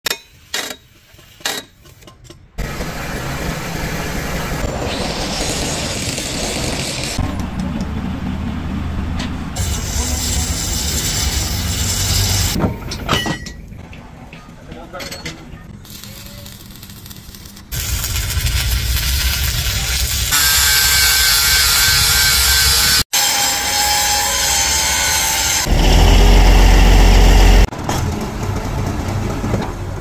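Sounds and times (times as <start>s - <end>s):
heavy machine running: 2.6s - 12.6s, 24.6s - 30.0s.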